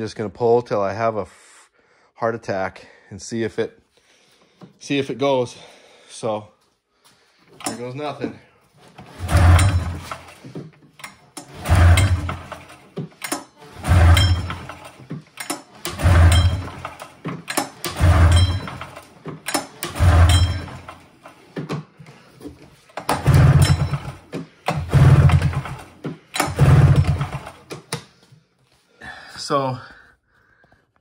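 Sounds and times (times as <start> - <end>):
engine turning over without firing: 8.8 - 21.8, 22.8 - 27.9.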